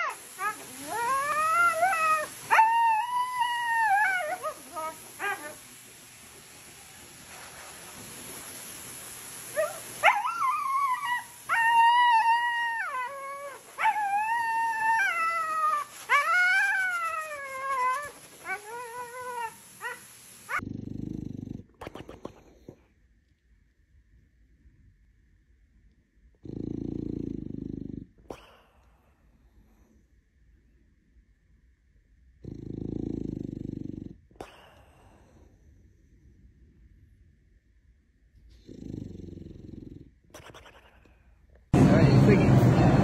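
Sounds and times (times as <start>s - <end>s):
dog howling and whining: 0.0s - 5.6s, 9.5s - 20.6s.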